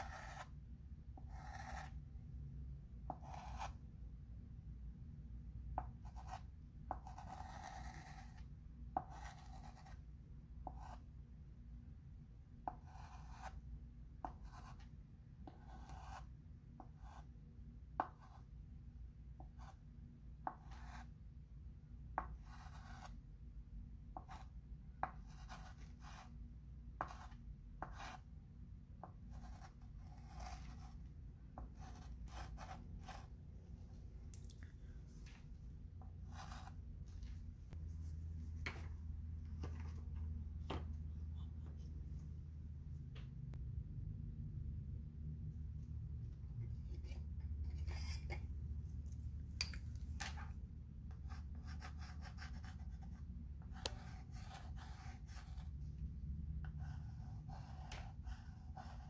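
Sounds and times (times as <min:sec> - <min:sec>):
chalk scratching on chalkboard: 0:00.0 - 0:00.5, 0:01.2 - 0:02.0, 0:03.1 - 0:03.8, 0:06.0 - 0:08.4, 0:09.0 - 0:10.0, 0:10.6 - 0:11.0, 0:12.7 - 0:13.6, 0:14.2 - 0:17.3, 0:20.4 - 0:21.1, 0:22.2 - 0:23.2, 0:24.2 - 0:26.4, 0:27.0 - 0:28.3, 0:29.3 - 0:31.0, 0:31.6 - 0:33.3, 0:36.2 - 0:36.8, 0:46.8 - 0:48.4, 0:51.2 - 0:55.8, 0:56.7 - 0:59.0.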